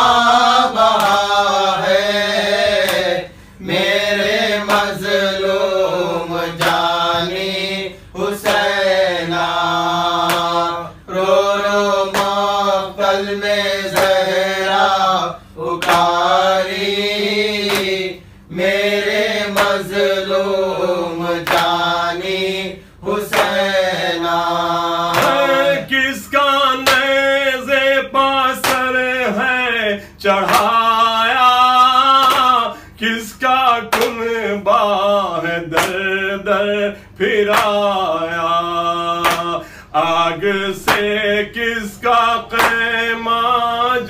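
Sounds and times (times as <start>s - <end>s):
man singing a lament: 0.0s - 44.0s
short breaths: 3.3s - 3.6s, 39.6s - 40.0s.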